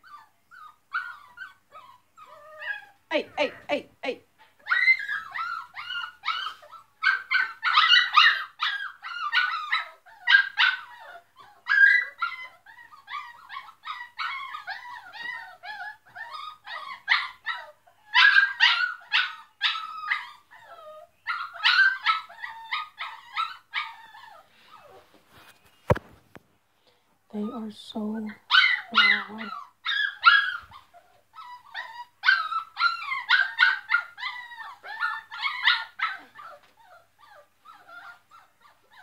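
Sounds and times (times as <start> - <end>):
dogs barking in high-pitched yips: 28.5 - 30.9, 32.2 - 36.6.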